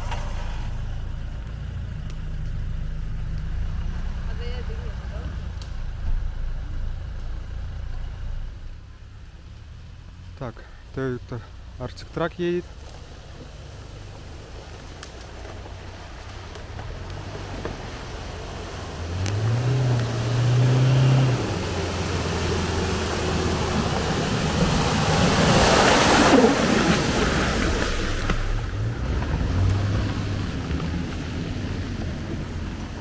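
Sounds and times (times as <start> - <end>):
truck engine driving off-road: 0.0 - 33.0.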